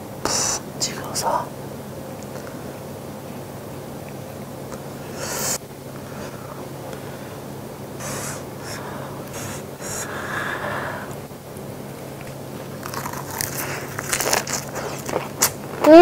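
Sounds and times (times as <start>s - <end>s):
crisp crunching bite: 12.2s - 15.9s.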